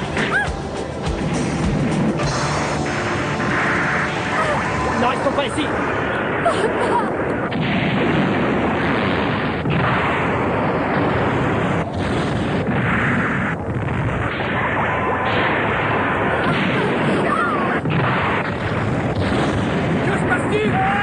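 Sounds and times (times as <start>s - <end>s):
bombs exploding: 0.0s - 21.0s.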